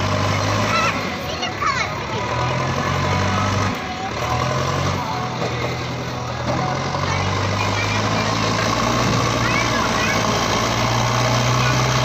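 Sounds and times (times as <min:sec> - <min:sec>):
diesel engine revving: 0:00.0 - 0:12.0.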